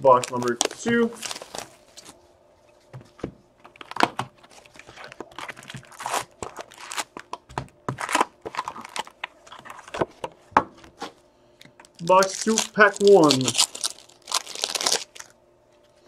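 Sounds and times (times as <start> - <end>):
foil packs rustling: 0.0 - 2.2, 3.7 - 10.1, 12.0 - 15.3
plastic wrap crinkling and tearing: 0.0 - 2.2, 3.8 - 10.0, 11.9 - 15.4.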